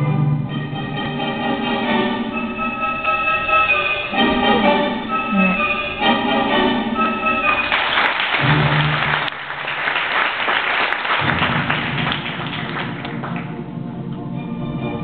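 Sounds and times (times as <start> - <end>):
orchestral music: 0.0 - 9.6, 11.2 - 15.0
audience applauding: 7.5 - 13.6.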